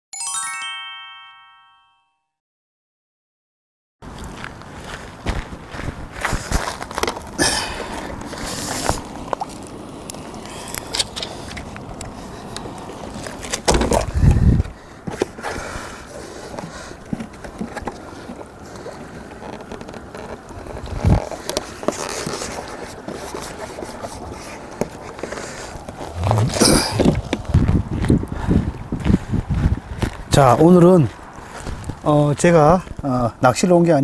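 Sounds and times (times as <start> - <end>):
wind rumbling on microphone: 4.1 - 10.5, 11.2 - 14.9, 20.4 - 21.4, 25.8 - 33.1
water lapping at shore: 15.9 - 19.6.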